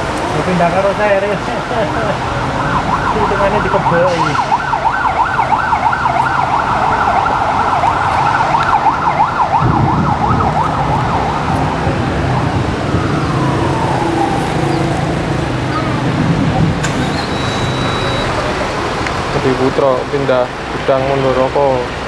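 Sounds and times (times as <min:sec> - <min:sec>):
vehicle engine rumble: 0:00.0 - 0:22.0
electronic siren yelping: 0:02.3 - 0:11.7, 0:12.8 - 0:16.0, 0:16.8 - 0:18.5.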